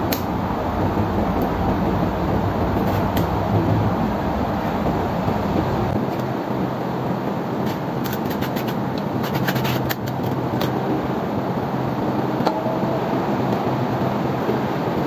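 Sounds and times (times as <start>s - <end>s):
steady rumbling background noise: 0.0s - 15.0s.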